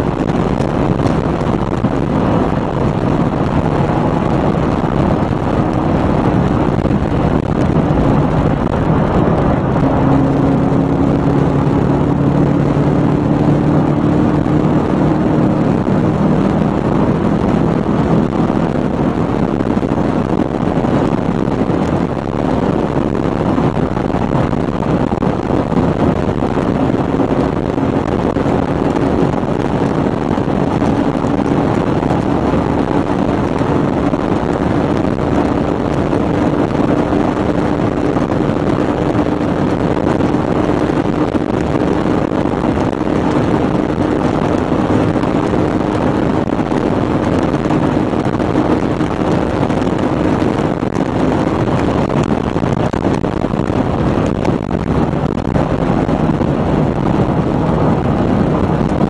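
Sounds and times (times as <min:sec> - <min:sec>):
car engine drone: 0:00.0 - 0:59.0
wind and tyre rush: 0:00.0 - 0:59.0.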